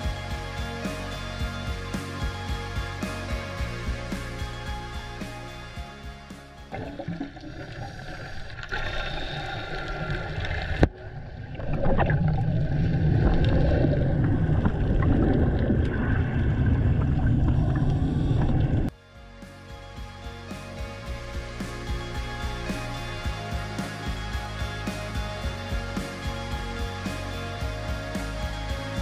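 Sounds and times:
underwater rumble and bubbling: 6.7 - 18.9.

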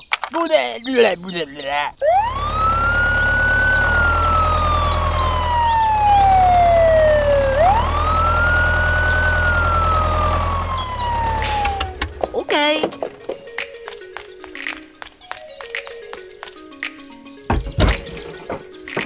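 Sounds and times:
wail siren: 2.0 - 12.2
low engine rumble: 2.0 - 13.5.

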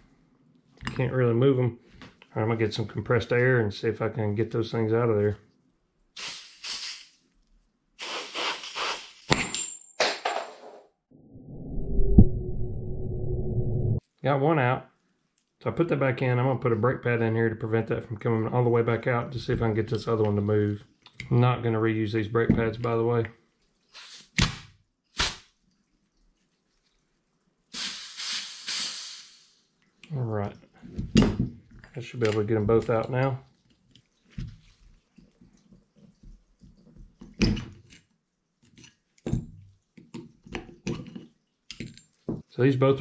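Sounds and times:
compressed air hissing from blow gun: 6.2 - 7.2, 8.0 - 9.3, 24.0 - 24.4, 27.8 - 29.6
low rumble: 11.2 - 14.0.

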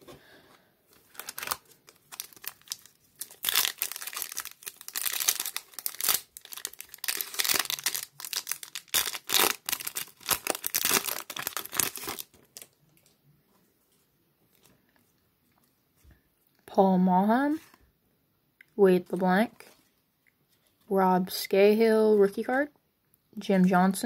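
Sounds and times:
foil wrapper crinkling: 0.9 - 12.7.

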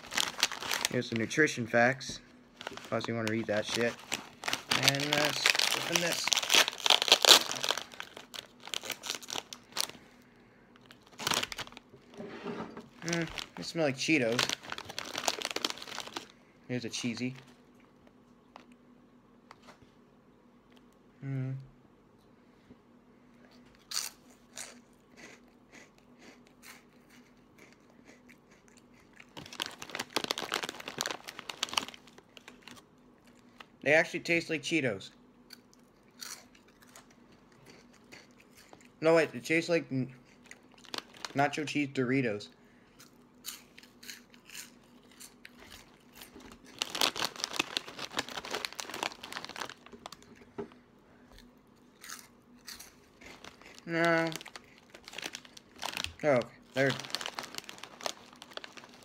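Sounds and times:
plastic snack bag crinkling: 0.0 - 10.2, 10.8 - 12.2, 12.9 - 17.6, 26.7 - 33.7, 40.3 - 42.0, 43.0 - 50.7, 51.4 - 59.0
chewing crunchy snack: 23.5 - 33.7, 35.5 - 39.0, 40.2 - 41.4, 42.9 - 50.5, 51.3 - 59.0.

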